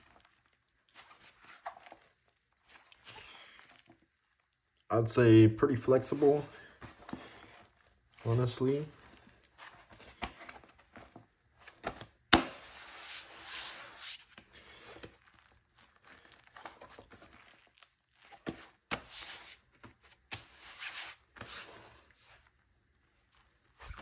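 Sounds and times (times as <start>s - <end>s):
cloth rustling and rubbing: 6.0s - 12.0s, 12.6s - 24.0s.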